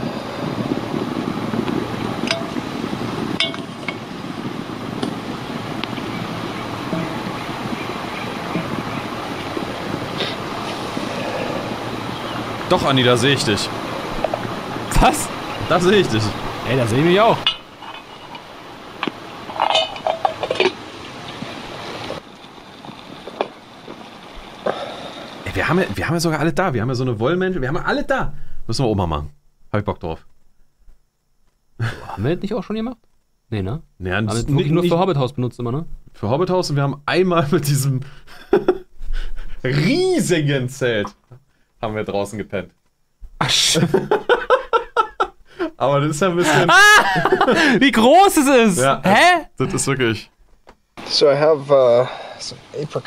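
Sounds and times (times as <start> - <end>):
low rushing noise: 0.0 - 19.5
steady hiss: 0.0 - 53.0
metal pot clinking: 2.3 - 2.6, 3.4 - 4.0, 6.9 - 7.4, 17.4 - 18.5, 19.5 - 20.8.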